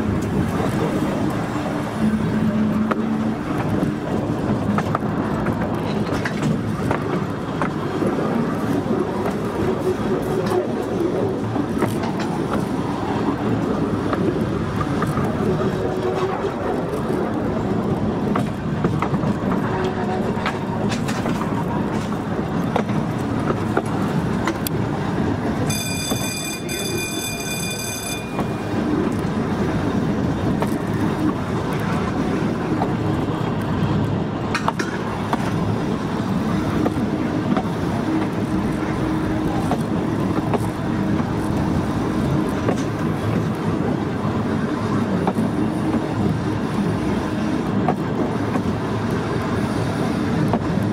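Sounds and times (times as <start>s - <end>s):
train motor and wheels rumbling: 0.0s - 50.9s
wheels clicking over rail joints: 0.0s - 50.9s
shrill warning tone: 25.7s - 28.8s.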